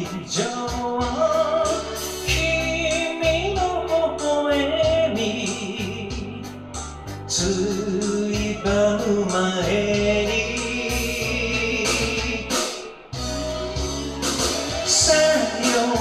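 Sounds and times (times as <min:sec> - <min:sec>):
man singing into microphone: 0:00.0 - 0:13.1, 0:14.8 - 0:16.0
karaoke backing track with beat: 0:00.0 - 0:16.0.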